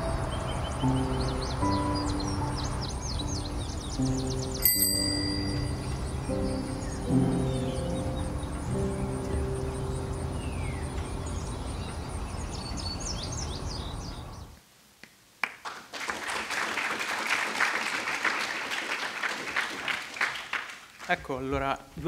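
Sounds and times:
low sustained music: 0.0 - 14.2
birds chirping: 0.0 - 14.6
audience applause: 15.4 - 21.4.

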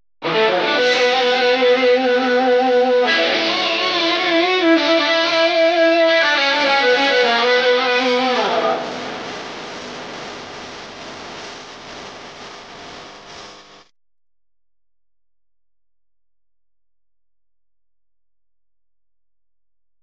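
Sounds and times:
guitar chords: 0.2 - 12.7
steady hiss: 7.0 - 13.9.

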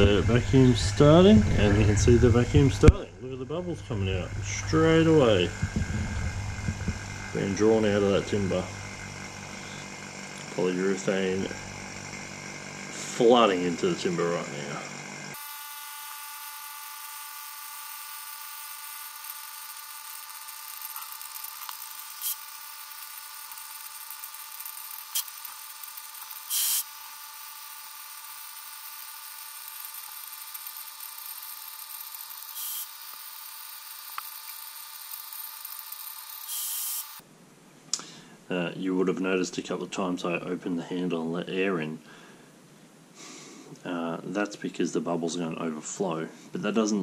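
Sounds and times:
electric vacuum pump buzzing whine: 0.0 - 37.3.

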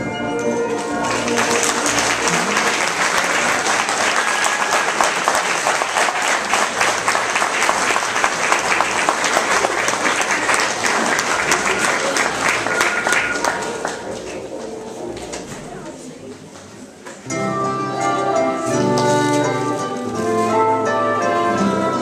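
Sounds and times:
audience applause: 0.8 - 15.2.

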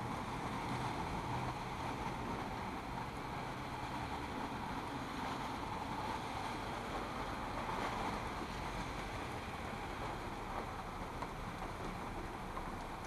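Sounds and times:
cars passing on wet road: 0.0 - 13.0
tyres hissing on wet pavement: 0.0 - 13.0.

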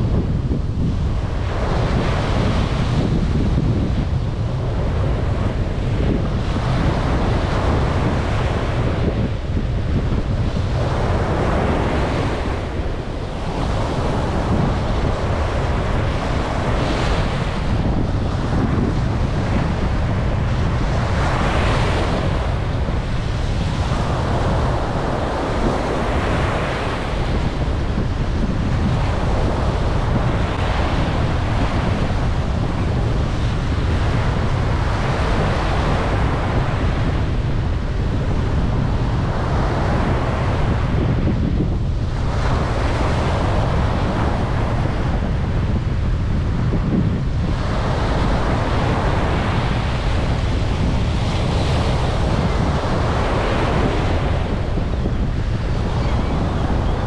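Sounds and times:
ocean surf breaking on beach: 0.0 - 57.0
wind rumbling on microphone: 0.0 - 57.0.

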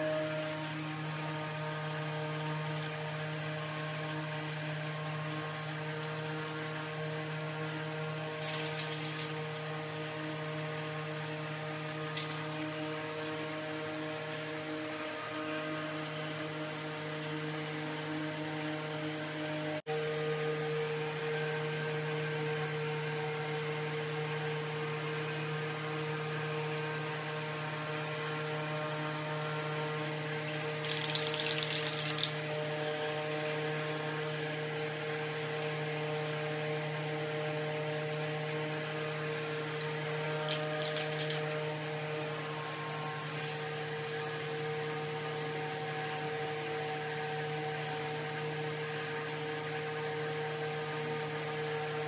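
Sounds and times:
steady hum: 0.0 - 52.0
spray can rattling: 8.3 - 9.3, 12.2 - 12.5, 30.8 - 32.4, 40.4 - 41.6.

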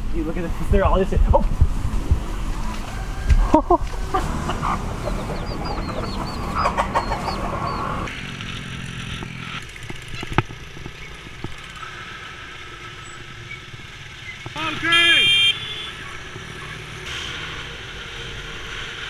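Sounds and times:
motorbike engine and road noise: 0.0 - 19.0
chicks peeping: 2.6 - 8.1
hen clucking: 2.6 - 8.1.

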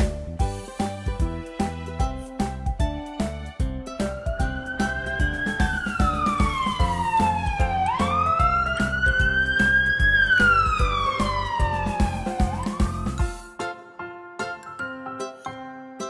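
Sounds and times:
children's music with steady beat: 0.0 - 16.0
wailing siren: 4.3 - 13.3.

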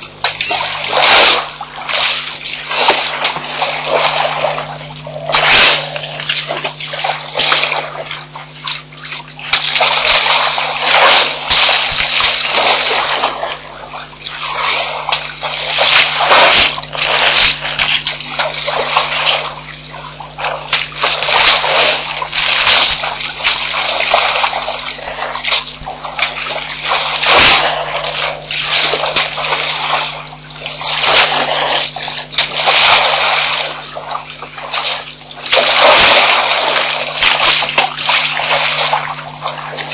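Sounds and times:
elephants splashing water: 0.0 - 39.9
steady low hum: 0.0 - 39.9.

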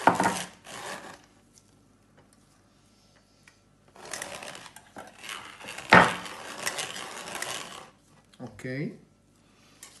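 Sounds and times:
food mill blade scraping metal sieve: 0.0 - 1.3, 4.0 - 8.0.

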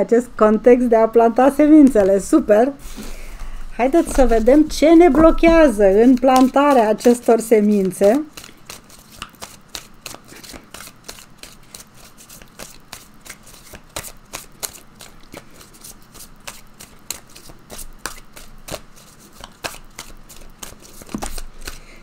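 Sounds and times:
cards being shuffled: 1.9 - 22.0.

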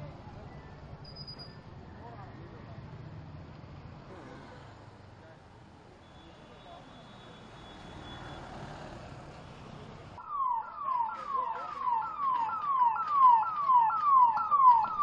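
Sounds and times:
street noise: 0.0 - 15.0
ambulance siren yelping: 10.2 - 15.0.

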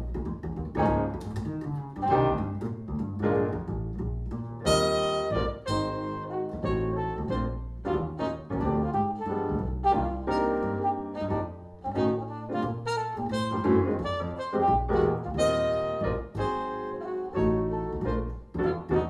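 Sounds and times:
piano: 0.0 - 19.0
walking double bass line: 0.0 - 19.0
trumpet: 4.6 - 19.0.

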